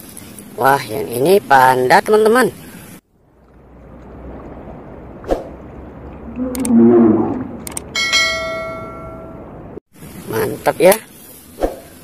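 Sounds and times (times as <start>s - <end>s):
bell chime: 8.0s - 9.4s.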